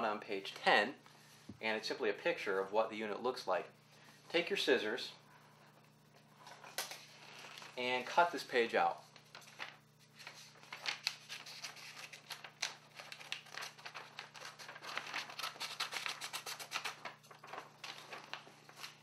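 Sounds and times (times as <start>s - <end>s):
paper rustling: 9.0s - 19.0s
scissors snipping paper: 15.3s - 17.0s.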